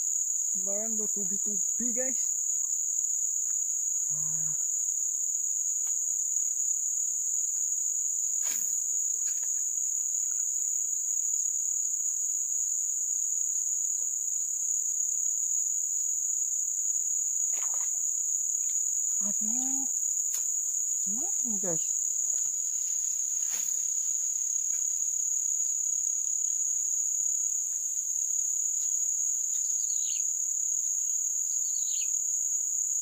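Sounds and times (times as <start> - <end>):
insects buzzing: 0.0 - 33.0.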